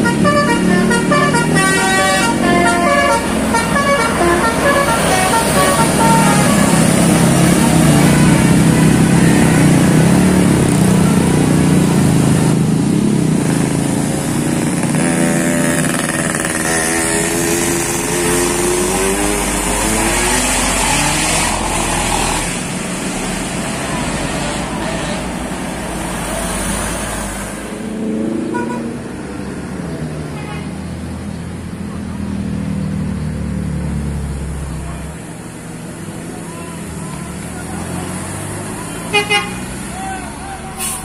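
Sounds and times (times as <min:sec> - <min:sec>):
motorcycles passing: 0:00.0 - 0:40.8
bus engine: 0:00.0 - 0:41.0.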